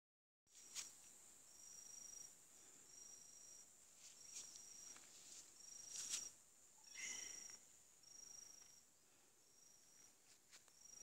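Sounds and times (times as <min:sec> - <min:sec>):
insect trill: 0:00.5 - 0:11.0
high-pitched insect drone: 0:01.5 - 0:02.3, 0:05.6 - 0:08.8, 0:09.4 - 0:10.1.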